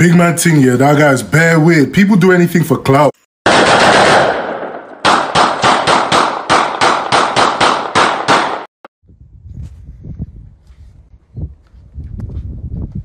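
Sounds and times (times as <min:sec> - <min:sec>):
rapid gunfire: 0:03.4 - 0:08.7.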